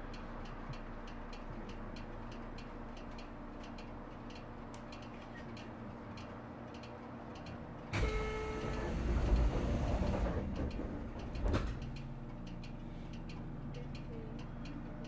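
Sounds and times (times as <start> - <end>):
light steady ticking: 0.0 - 8.7, 10.5 - 15.0
brief door warning tone: 8.0 - 9.1.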